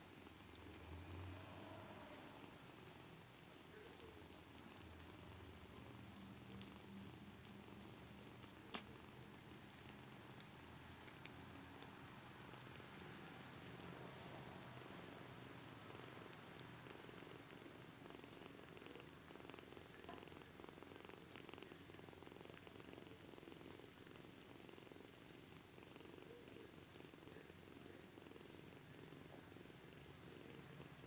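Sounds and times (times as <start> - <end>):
cats purring: 0.0 - 31.0
faint small clicks: 8.3 - 13.9.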